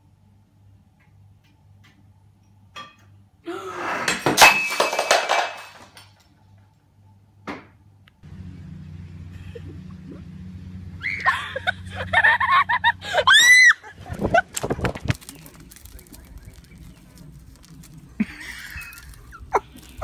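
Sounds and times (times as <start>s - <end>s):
cat food container crashing: 4.1s - 6.0s
kibble scattering clatter: 4.2s - 6.2s, 14.1s - 20.0s.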